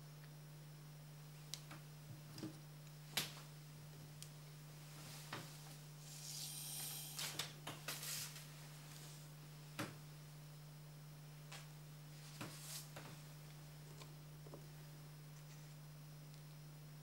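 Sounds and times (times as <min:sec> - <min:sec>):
low electrical hum: 0:00.0 - 0:17.0
paper rustling and sliding: 0:07.2 - 0:09.3.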